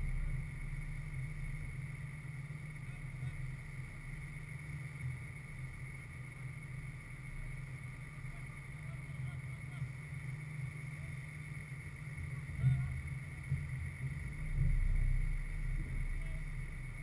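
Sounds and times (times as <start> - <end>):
distant voices of players: 0.0 - 17.0
steady low rumble: 0.0 - 17.0.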